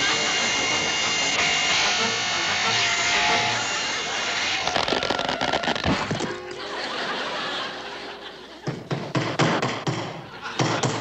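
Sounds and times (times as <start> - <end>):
sharp knocks and clatters: 8.6 - 11.0.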